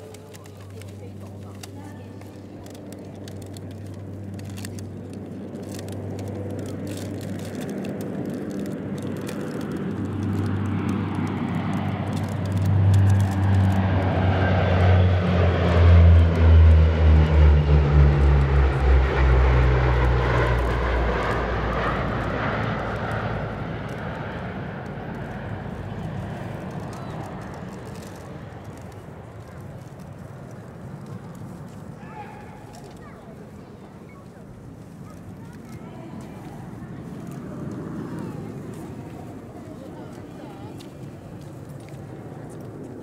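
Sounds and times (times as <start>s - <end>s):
turboprop planes droning overhead: 0.0s - 43.0s.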